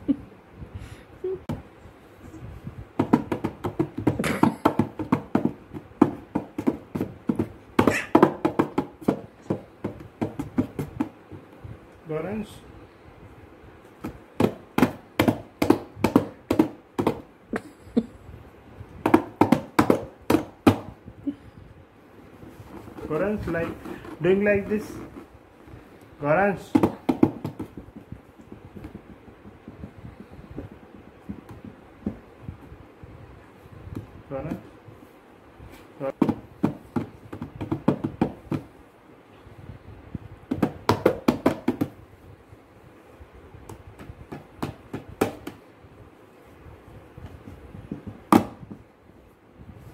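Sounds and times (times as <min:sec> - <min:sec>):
hands slapping cardboard box: 0:03.0 - 0:11.5, 0:14.0 - 0:17.3, 0:19.0 - 0:21.0, 0:26.6 - 0:32.3, 0:36.1 - 0:38.7, 0:40.5 - 0:42.0, 0:43.6 - 0:45.6, 0:47.2 - 0:48.9.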